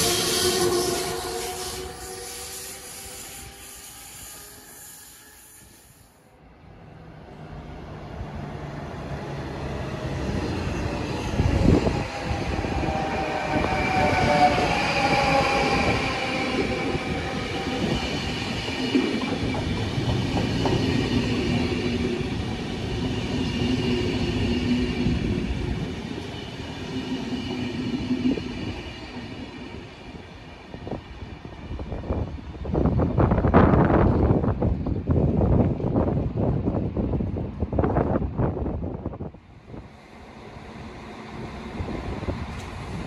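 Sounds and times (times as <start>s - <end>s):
train motor whine and hum: 37.7s - 43.0s.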